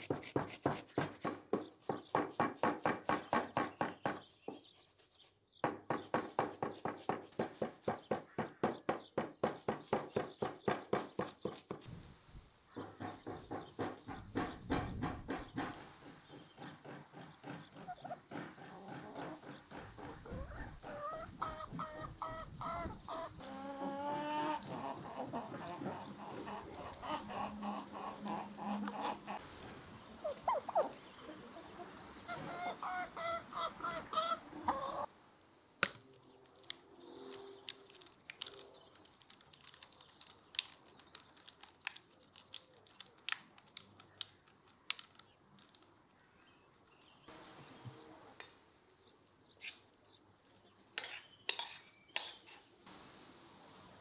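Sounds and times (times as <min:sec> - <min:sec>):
chickens clucking: 0:12.8 - 0:35.1.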